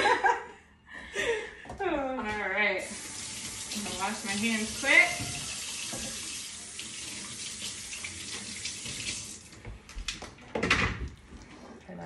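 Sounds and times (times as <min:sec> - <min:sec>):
tap running into sink: 0:02.9 - 0:09.4
hands washing under water: 0:02.9 - 0:09.6.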